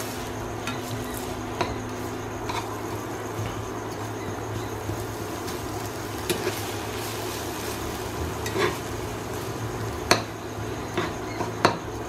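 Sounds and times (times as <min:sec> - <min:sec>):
frying sizzle: 0:00.0 - 0:12.0
metal spatula scraping a pan: 0:05.5 - 0:09.5
spatula clacking against pan: 0:10.0 - 0:11.8.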